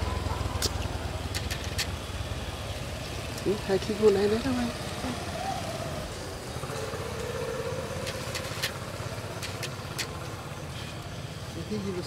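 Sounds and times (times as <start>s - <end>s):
sharp clicks: 8.0s - 10.3s.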